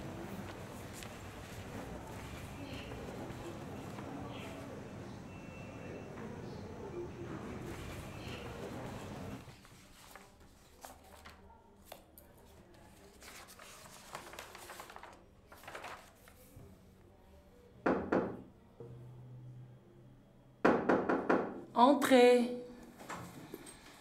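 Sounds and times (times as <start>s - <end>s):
paper rustling: 0.2s - 4.6s, 7.6s - 16.8s
knocking on wooden door: 17.9s - 18.4s, 20.6s - 21.7s.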